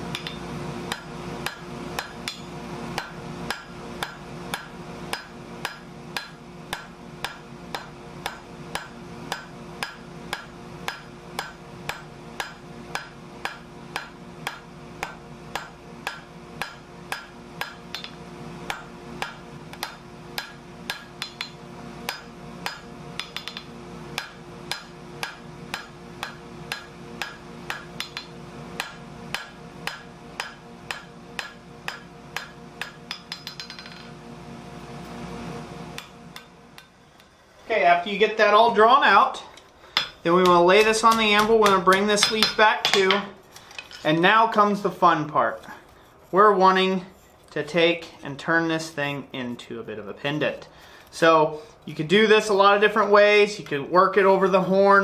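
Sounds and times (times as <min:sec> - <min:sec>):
steady hum: 0:00.0 - 0:55.0
hammer striking steel on anvil: 0:00.1 - 0:34.1, 0:36.0 - 0:37.3, 0:39.9 - 0:44.0.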